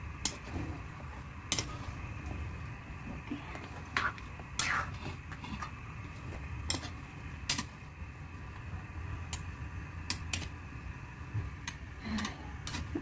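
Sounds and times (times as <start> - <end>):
low steady hum: 0.0 - 13.0
metal spoon scraping a wok: 6.6 - 7.0.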